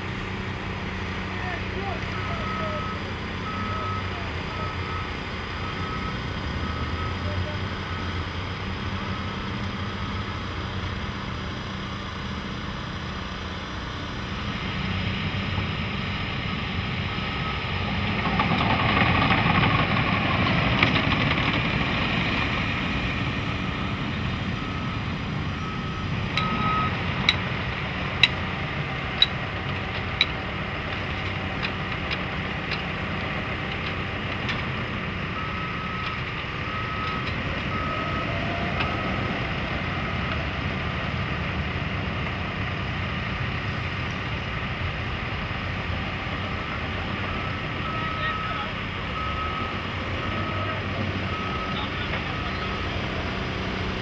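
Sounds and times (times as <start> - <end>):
heavy machinery running: 0.0 - 54.0
backup alarm beeping: 2.1 - 7.3, 23.1 - 27.4, 46.6 - 52.9.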